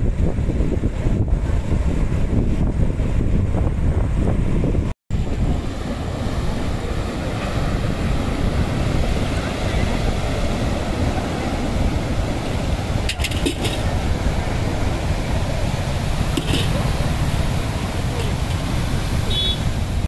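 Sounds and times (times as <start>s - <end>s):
wind buffeting microphone: 0.0s - 20.0s
waves breaking on rocky shore: 5.1s - 20.0s.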